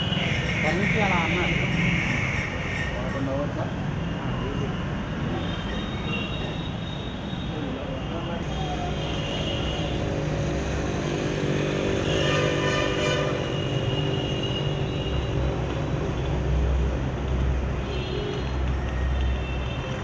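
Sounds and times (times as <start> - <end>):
vehicle engines running: 8.4 - 20.0.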